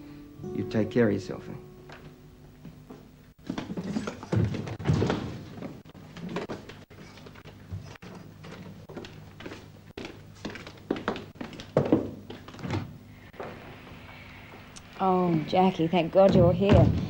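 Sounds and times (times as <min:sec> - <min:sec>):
footsteps on hard floor: 0:01.9 - 0:14.7
heavy knocks: 0:16.2 - 0:17.0.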